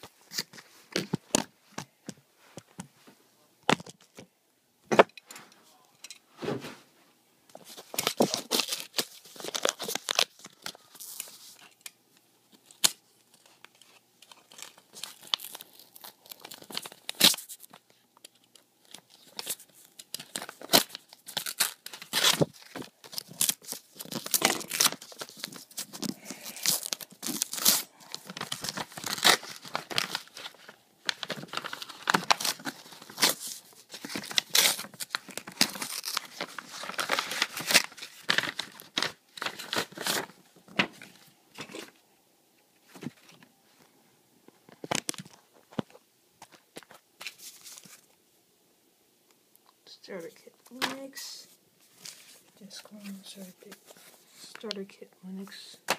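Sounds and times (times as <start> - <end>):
paper pages rustling and flicking: 18.8 - 41.9, 44.7 - 48.1, 51.9 - 54.8.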